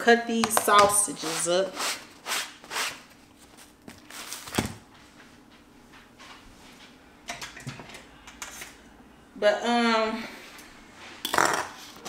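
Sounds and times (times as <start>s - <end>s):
plastic packaging rustling: 3.0s - 4.8s.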